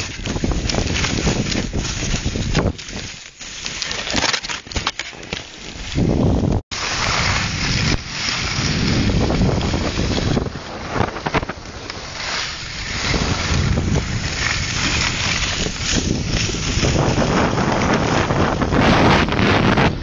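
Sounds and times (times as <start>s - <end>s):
wind buffeting microphone: 0.0s - 3.2s, 5.8s - 20.0s
skis sliding on snow: 0.0s - 20.0s.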